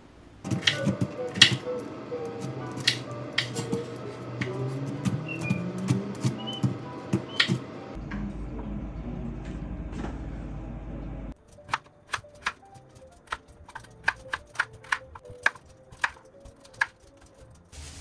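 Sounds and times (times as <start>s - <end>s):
low hum: 0.0s - 11.4s.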